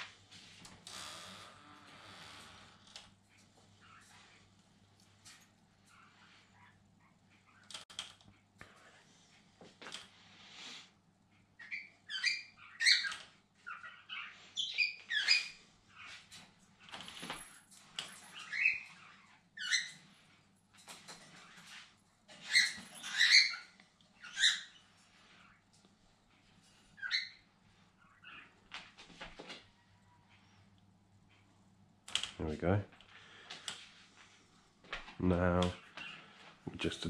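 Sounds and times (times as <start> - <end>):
cockatiels chirping: 11.6 - 16.2, 22.4 - 25.6.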